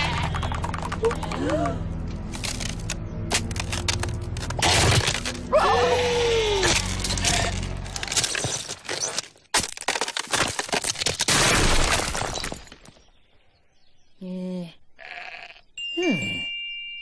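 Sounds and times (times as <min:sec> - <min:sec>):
cartoon statue cracking and crumbling: 0:02.4 - 0:05.5, 0:06.6 - 0:13.1.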